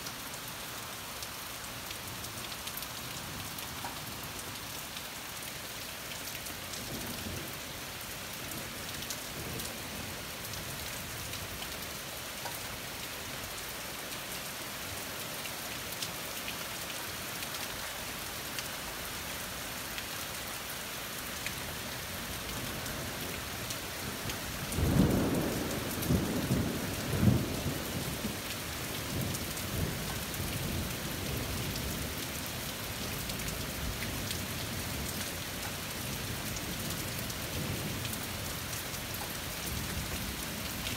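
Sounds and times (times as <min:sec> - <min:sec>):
steady rain falling: 0:00.0 - 0:40.9.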